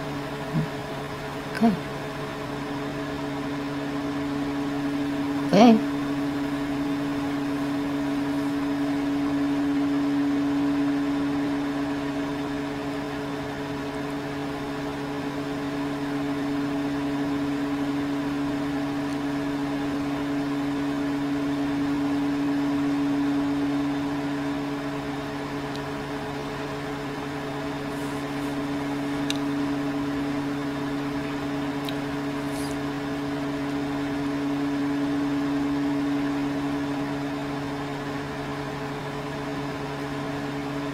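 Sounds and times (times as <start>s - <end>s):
microwave oven humming: 0.0s - 40.9s.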